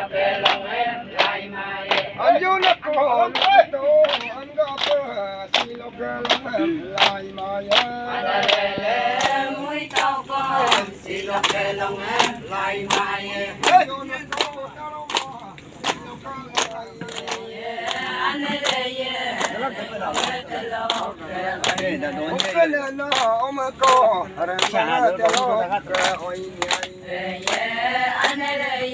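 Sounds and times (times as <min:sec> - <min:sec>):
chorus singing a chant: 0:00.0 - 0:03.7, 0:07.1 - 0:14.6, 0:16.7 - 0:22.7, 0:24.2 - 0:28.9.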